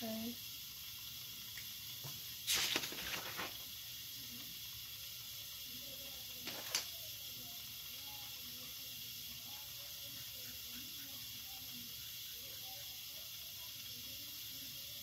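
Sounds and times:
background hiss: 0:00.0 - 0:15.0
paper pages rustling: 0:02.5 - 0:03.6.

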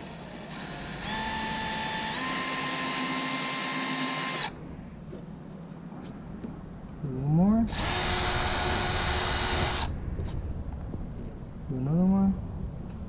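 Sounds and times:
cordless drill whine: 0:00.0 - 0:04.6, 0:07.7 - 0:09.9.

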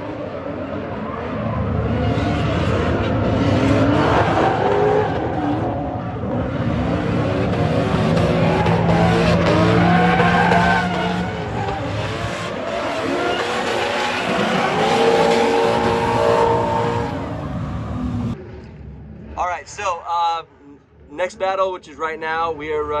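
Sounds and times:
car engines revving: 0:00.0 - 0:21.4
tyres screeching: 0:08.0 - 0:18.0.

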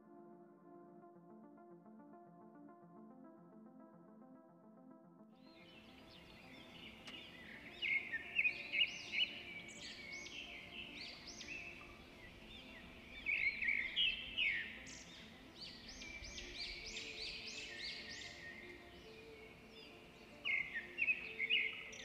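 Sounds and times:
lovebirds chirping and chattering: 0:05.8 - 0:22.0.

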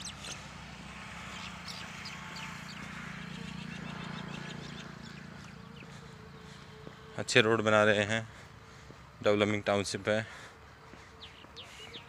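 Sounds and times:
low engine hum: 0:00.0 - 0:09.2
birds chirping: 0:00.0 - 0:12.0.

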